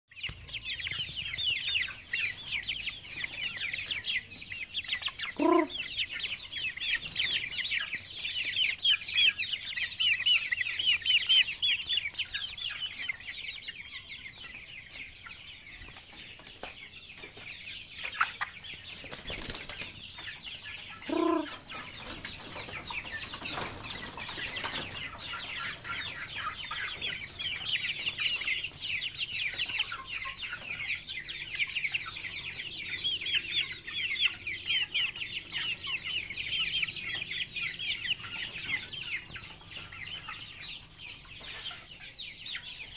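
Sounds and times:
chickens peeping: 0:00.1 - 0:42.9
chicken squawk: 0:00.5 - 0:12.0, 0:20.7 - 0:21.9.

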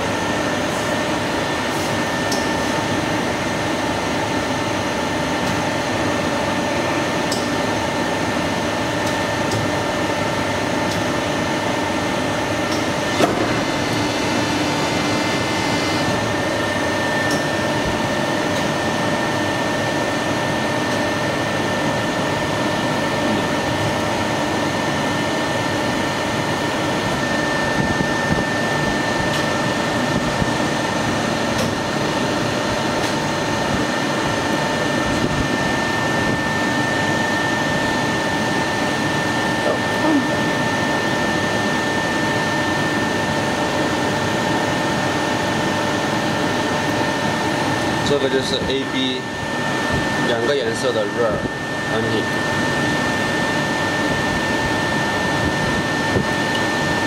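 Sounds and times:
machine humming: 0:00.0 - 0:44.7.

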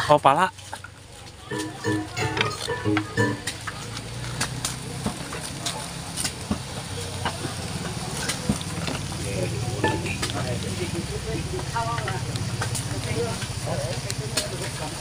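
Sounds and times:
small engine idling: 0:03.5 - 0:15.0.

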